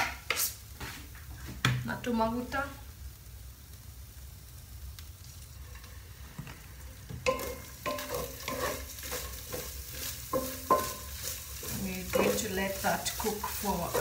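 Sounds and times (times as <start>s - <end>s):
food sizzling in a pan: 0.0s - 14.0s
wooden spoon scraping a pan: 5.6s - 14.0s.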